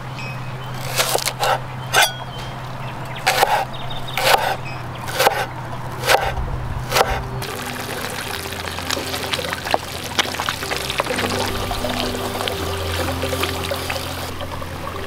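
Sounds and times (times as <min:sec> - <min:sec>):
cleaver chopping on wooden board: 0:03.3 - 0:06.3, 0:06.9 - 0:07.2
background music: 0:05.6 - 0:15.0.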